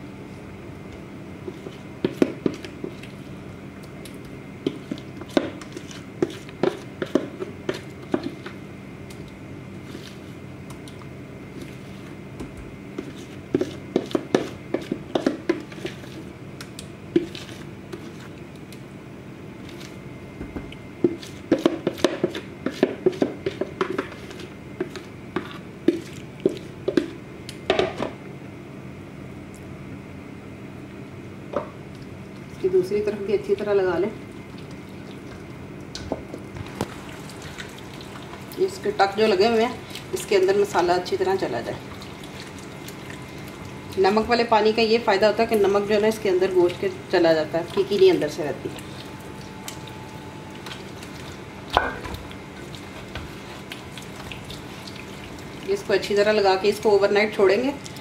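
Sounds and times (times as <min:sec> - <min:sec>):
hands squelching wet marinade: 0:01.4 - 0:18.8, 0:20.6 - 0:27.6, 0:34.2 - 0:58.0.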